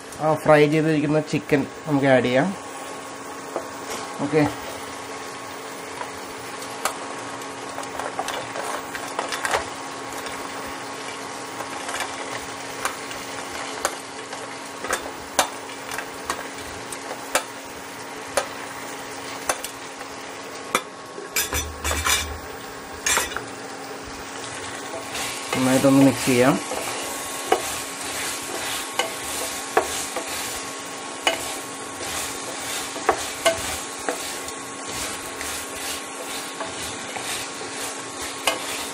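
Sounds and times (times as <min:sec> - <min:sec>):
sauce sizzling in a pan: 0:00.0 - 0:38.9
steady hum: 0:12.5 - 0:38.9
spatula scraping a pan: 0:24.9 - 0:30.6, 0:31.2 - 0:38.9.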